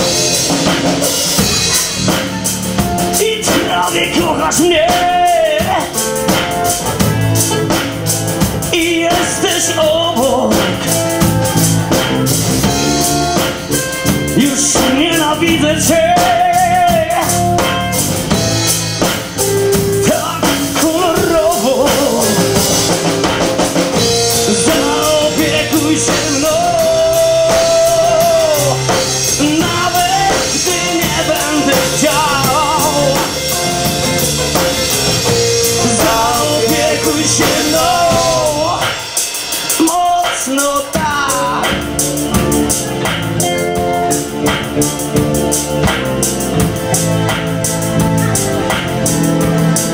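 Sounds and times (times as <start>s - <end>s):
bass guitar: 0.0s - 49.9s
drum kit: 0.0s - 49.9s
man singing: 3.0s - 11.7s, 13.0s - 18.0s, 19.9s - 33.8s, 35.3s - 44.2s.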